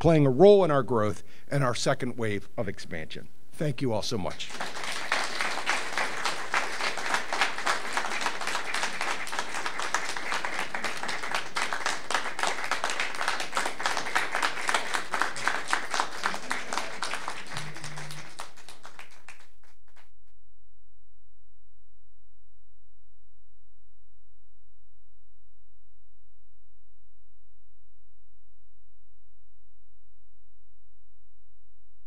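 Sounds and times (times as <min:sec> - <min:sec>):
audience applauding: 0:04.3 - 0:20.0.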